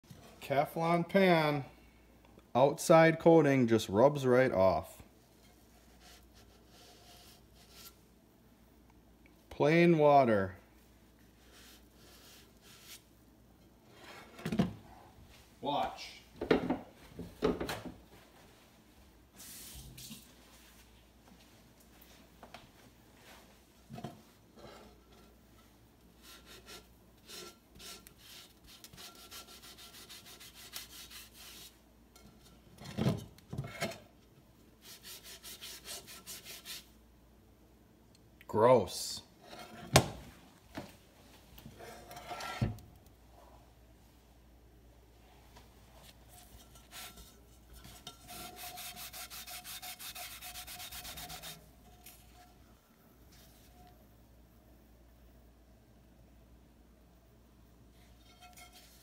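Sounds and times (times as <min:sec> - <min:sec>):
paper towel scrubbing a pot: 0:05.4 - 0:08.0, 0:11.2 - 0:13.2, 0:26.2 - 0:31.8, 0:34.8 - 0:36.9, 0:45.9 - 0:52.6, 0:58.2 - 0:59.0.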